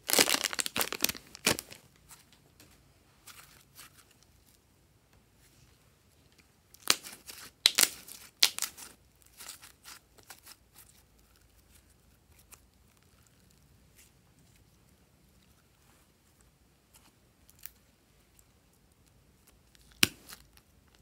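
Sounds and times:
slime crackling and popping: 0.0s - 1.8s, 6.7s - 11.0s, 19.4s - 21.0s.

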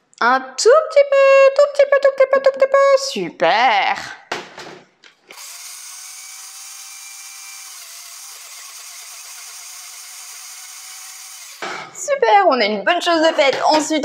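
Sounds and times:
blender motor running: 5.3s - 12.0s.

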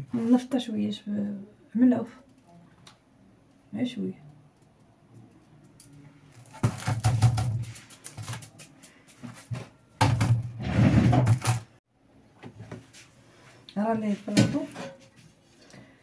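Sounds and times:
baking paper crinkling: 6.4s - 9.0s.

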